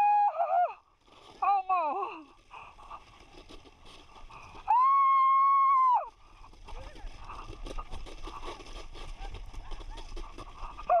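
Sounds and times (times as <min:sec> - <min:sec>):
sled sliding over icy snow: 0:00.0 - 0:11.0
person shrieking: 0:04.7 - 0:06.1.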